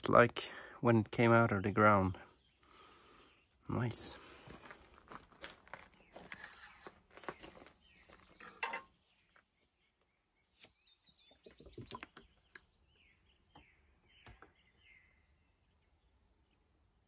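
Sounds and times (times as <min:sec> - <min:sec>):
small bird chirping: 0:05.8 - 0:16.7.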